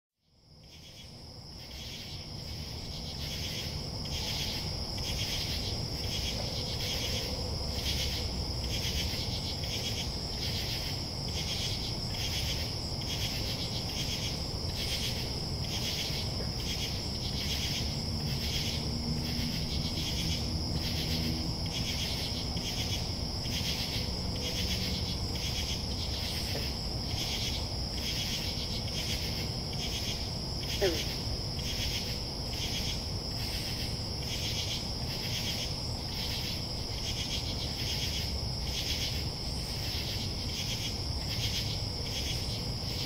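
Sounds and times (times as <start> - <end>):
crickets trilling: 0.2 - 43.0
pulsing insect chorus: 0.2 - 43.0.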